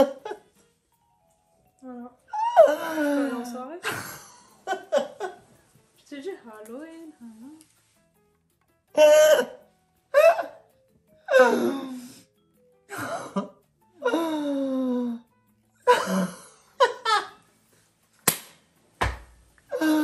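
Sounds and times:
sharp click: 18.2s - 18.6s.

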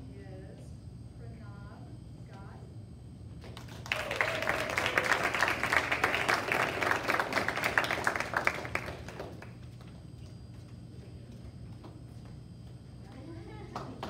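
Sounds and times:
audience clapping: 3.5s - 10.0s.

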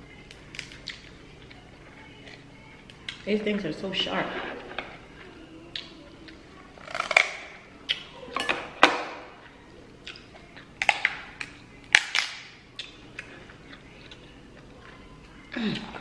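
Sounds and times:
crab shells cracking: 0.3s - 1.2s.

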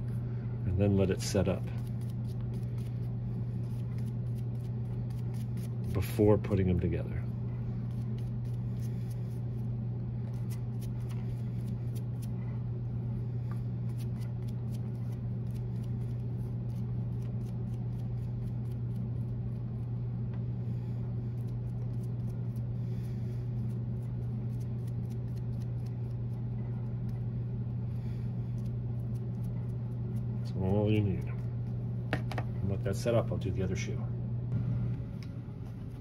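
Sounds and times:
steady low hum: 0.0s - 36.0s.

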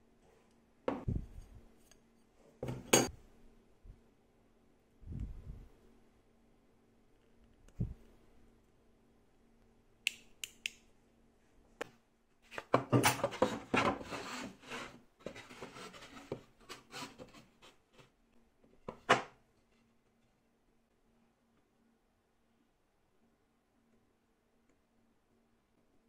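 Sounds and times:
plywood panels knocking and scraping: 12.6s - 17.5s, 18.8s - 19.4s.

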